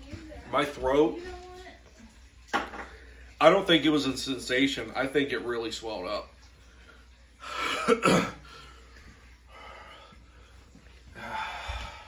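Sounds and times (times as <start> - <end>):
man coughing: 7.6 - 8.4
man breathing out heavily: 11.2 - 12.0.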